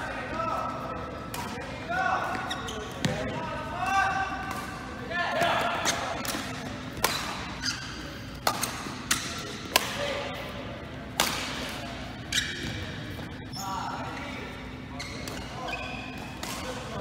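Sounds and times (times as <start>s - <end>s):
rackets hitting shuttlecock: 4.4s - 7.6s, 8.4s - 10.1s, 11.1s - 12.8s.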